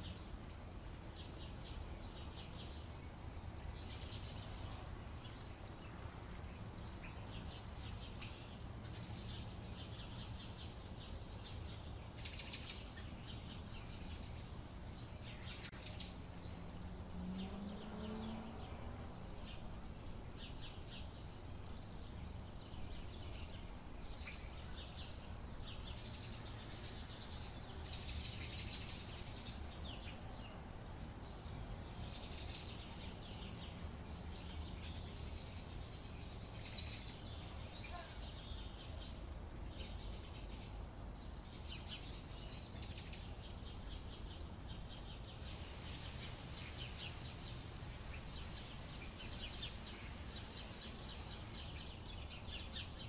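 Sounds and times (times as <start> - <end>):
birds chirping and singing: 41.6 - 53.0
steady low rumble: 45.2 - 53.0.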